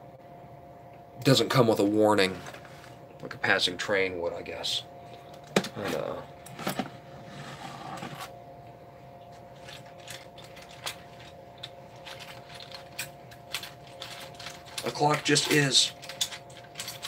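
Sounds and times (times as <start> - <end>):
faint steady hum: 0.0 - 17.0
small metal parts clicking: 9.6 - 17.0.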